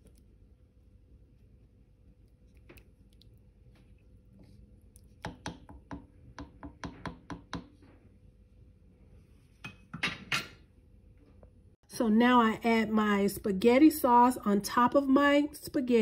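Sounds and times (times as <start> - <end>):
spoon stirring thick sauce: 1.4 - 7.6
spoon knocking on pot: 5.2 - 7.8.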